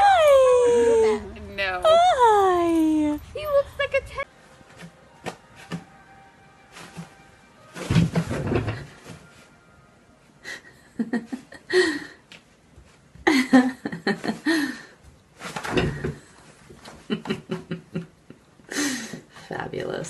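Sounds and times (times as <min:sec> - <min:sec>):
person laughing: 0:13.3 - 0:14.8, 0:17.0 - 0:18.2.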